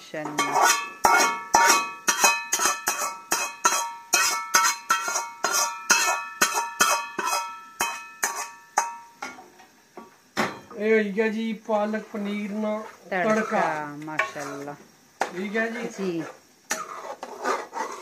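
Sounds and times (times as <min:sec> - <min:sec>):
metal spoon striking frying pan: 0:00.2 - 0:09.4.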